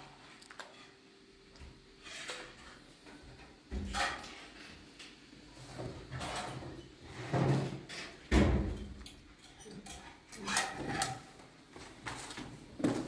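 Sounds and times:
cabinet doors and drawers banging: 0:05.8 - 0:09.0.

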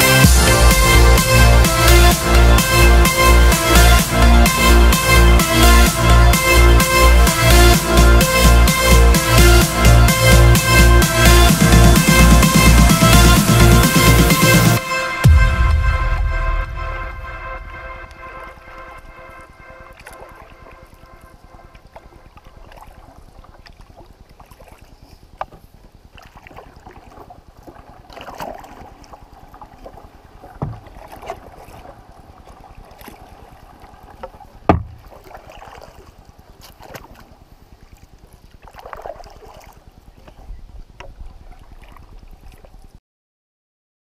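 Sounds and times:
paddle strokes swishing through water: 0:17.7 - 0:43.0
sharp knocks: 0:34.7 - 0:35.0.

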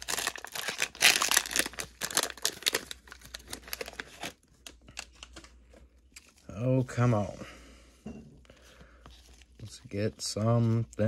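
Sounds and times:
plastic wrapper crinkling and tearing: 0:00.0 - 0:06.6.

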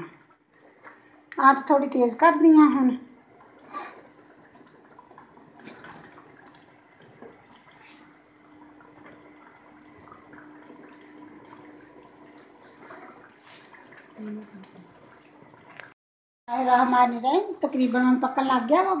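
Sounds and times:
gravy bubbling in oil: 0:02.3 - 0:16.0.

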